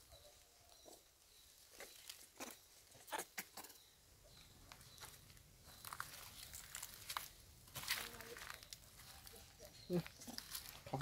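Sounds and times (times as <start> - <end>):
dry leaves rustling and crackling: 4.8 - 11.0.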